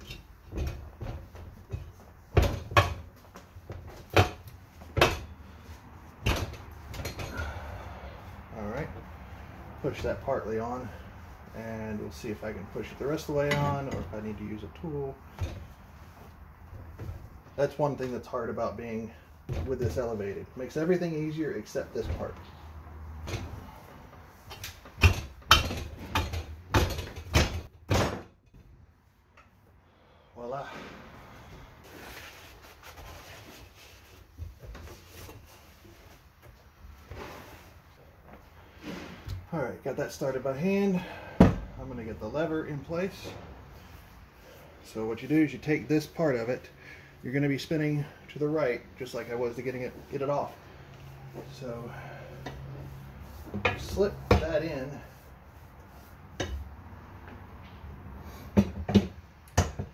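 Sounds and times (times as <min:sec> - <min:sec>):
tire thumping against metal rim: 0:00.0 - 0:05.6, 0:06.2 - 0:07.8, 0:24.4 - 0:28.7, 0:53.4 - 0:55.0, 0:58.5 - 0:59.9
tire thumping against rim: 0:00.0 - 0:05.6.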